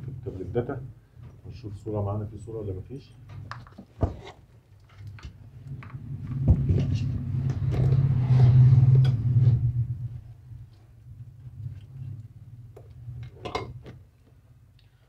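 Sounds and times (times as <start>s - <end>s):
clicks and rustles of handling: 3.2s - 7.0s
low rumble: 5.6s - 13.4s.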